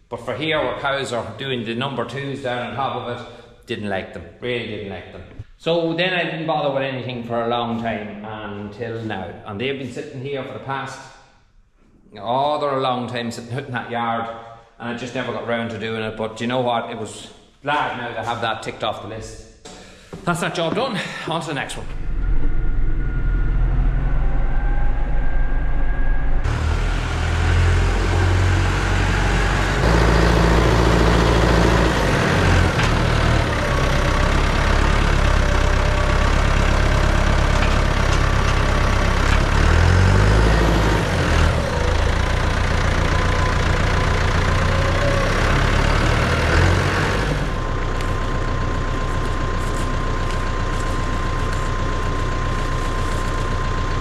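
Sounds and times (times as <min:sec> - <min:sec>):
tractor diesel engine: 0:21.7 - 0:54.0.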